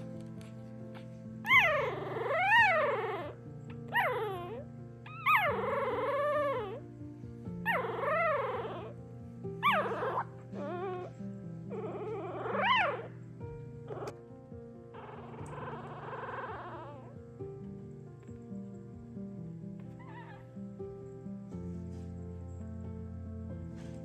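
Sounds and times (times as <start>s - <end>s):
puppies squealing and crying: 0.9s - 6.9s, 7.6s - 9.0s, 9.6s - 13.2s, 13.8s - 14.2s, 14.9s - 17.2s, 19.8s - 20.5s.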